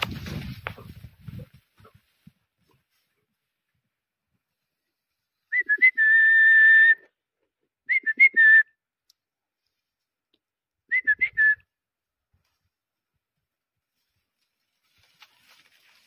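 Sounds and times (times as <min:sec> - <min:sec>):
person whistling: 0:05.5 - 0:07.1, 0:07.9 - 0:08.8, 0:10.9 - 0:11.7.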